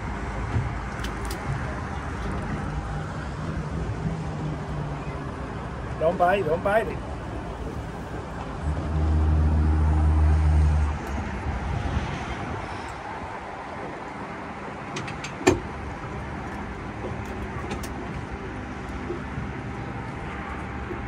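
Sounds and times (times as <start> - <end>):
loud low motor hum: 7.0 - 14.9.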